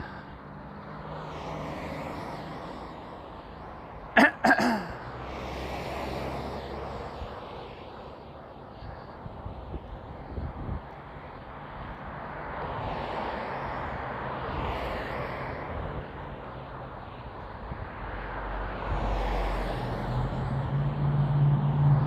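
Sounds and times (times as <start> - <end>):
vehicle passing by: 0.0 - 4.0, 5.0 - 22.0.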